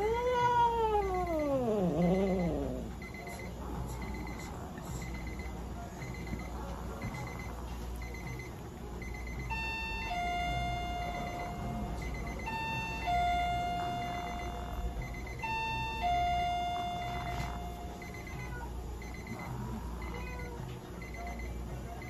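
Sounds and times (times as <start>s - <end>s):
two-note falling alarm signal: 9.4s - 18.5s.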